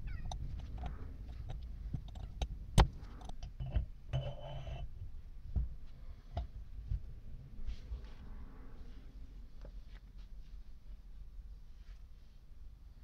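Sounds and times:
metal scraping: 0:03.0 - 0:04.9.

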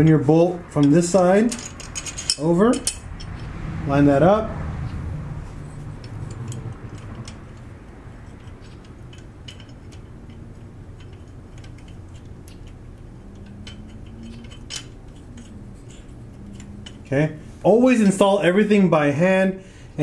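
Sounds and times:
metallic clicks of bolt turning: 0:06.0 - 0:17.1.

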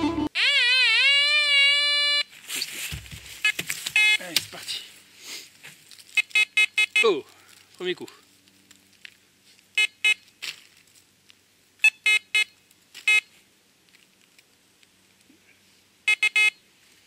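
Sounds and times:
soil crumbling: 0:02.3 - 0:06.4, 0:07.0 - 0:11.5
metal detector beeps: 0:03.4 - 0:04.2, 0:06.2 - 0:07.1, 0:11.8 - 0:13.3, 0:16.1 - 0:16.6.

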